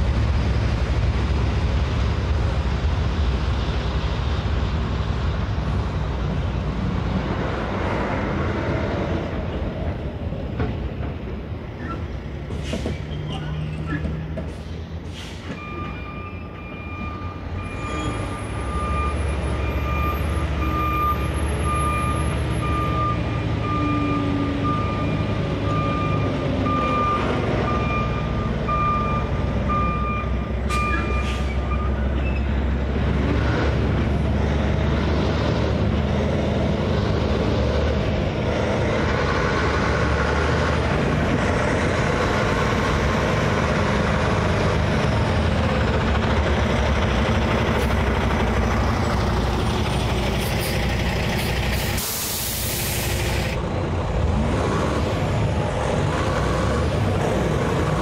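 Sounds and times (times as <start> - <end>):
diesel truck engine: 0.0 - 58.0.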